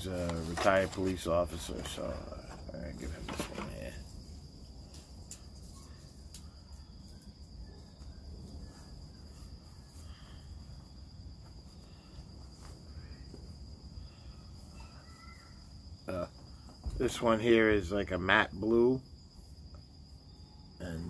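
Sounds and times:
crickets trilling: 0.0 - 21.0.

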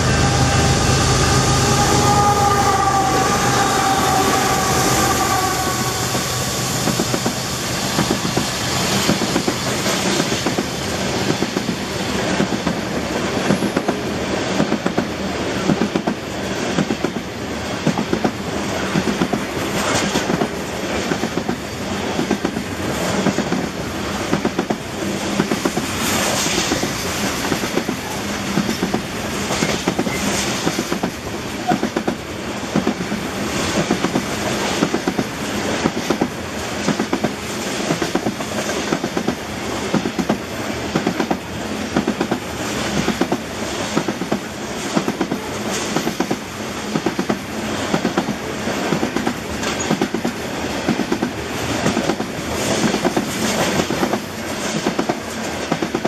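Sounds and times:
high-pitched squeal: 0.0 - 9.0
freight train rolling past: 0.0 - 56.0.

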